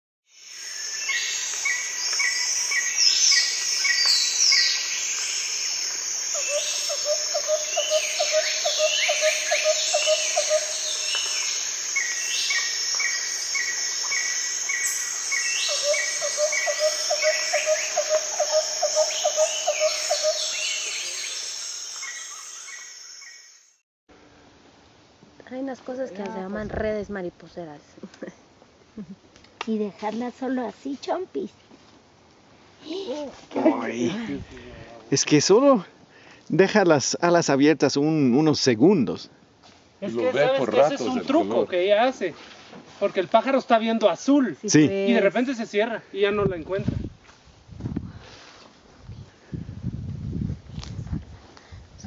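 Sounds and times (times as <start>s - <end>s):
high insect drone: 0.3s - 23.8s
birds calling: 0.4s - 23.6s.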